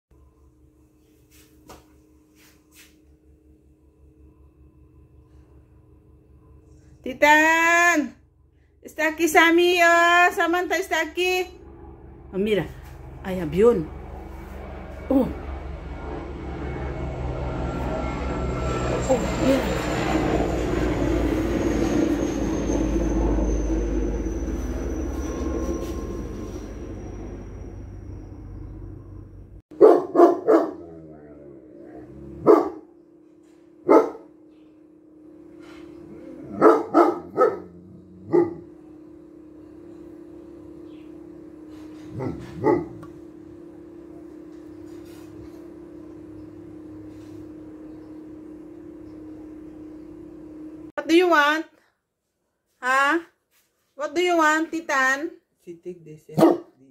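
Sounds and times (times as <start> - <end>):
steady hum: 0.2 - 51.5
helicopter flying overhead: 5.8 - 51.6
dog barking: 29.7 - 30.9, 32.4 - 32.9, 33.8 - 34.3, 36.5 - 38.7, 42.2 - 43.0, 56.4 - 56.7.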